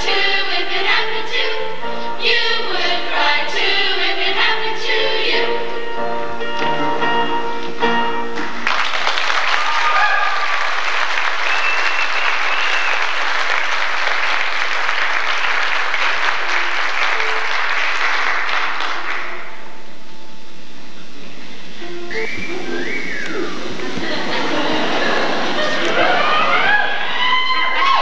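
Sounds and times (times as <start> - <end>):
audience applauding: 8.4 - 19.6, 22.1 - 28.0
whistles: 11.4 - 13.3, 21.9 - 24.2.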